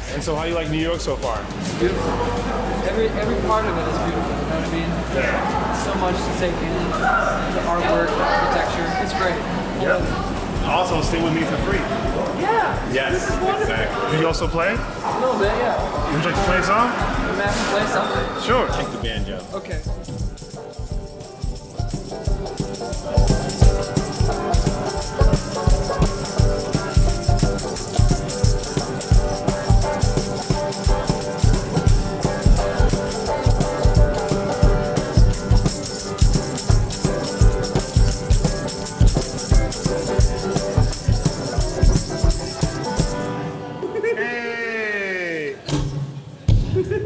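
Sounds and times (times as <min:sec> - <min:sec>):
acoustic guitar strumming: 0:09.4 - 0:43.8
banjo strumming: 0:09.6 - 0:43.8
tambourine shaken and struck: 0:09.8 - 0:43.4.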